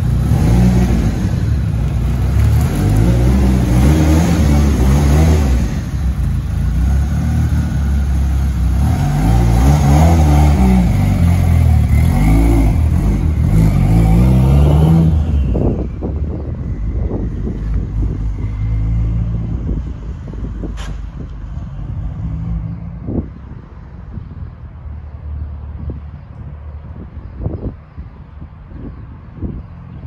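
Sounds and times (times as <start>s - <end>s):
car engine revving: 0.0s - 15.8s.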